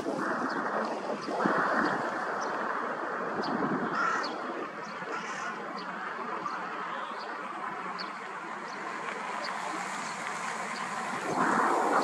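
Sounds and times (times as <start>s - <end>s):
wind rushing: 0.0s - 4.8s, 9.8s - 12.0s
crow cawing: 3.9s - 4.4s, 5.1s - 5.6s.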